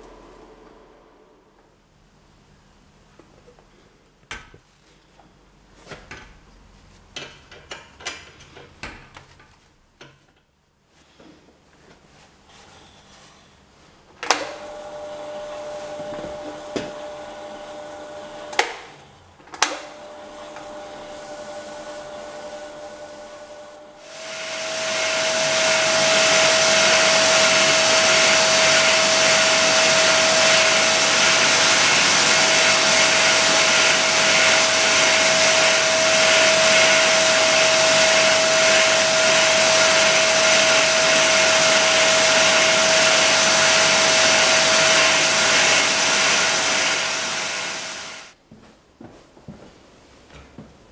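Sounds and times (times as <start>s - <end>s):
electric motor humming: 19.9s - 48.3s
lathe cutting rushing whine: 20.0s - 48.3s.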